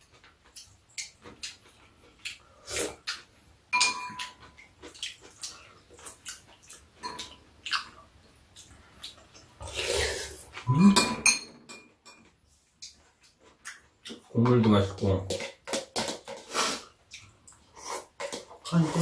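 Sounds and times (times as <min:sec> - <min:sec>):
spoons clinking on ceramic bowls: 0:03.7 - 0:04.6, 0:07.0 - 0:07.3, 0:10.7 - 0:12.3
slurping soup: 0:09.6 - 0:10.8, 0:16.4 - 0:17.0.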